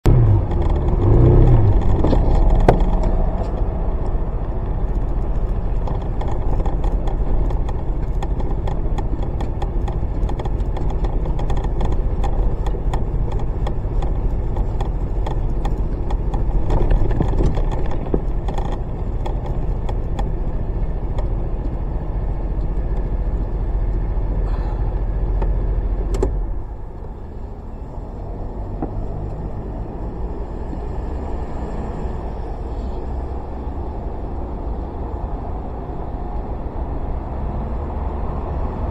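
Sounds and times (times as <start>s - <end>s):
road noise: 0.0s - 38.9s
scooter engine rumbling: 0.1s - 31.0s
small clicks and rattles: 0.4s - 24.1s.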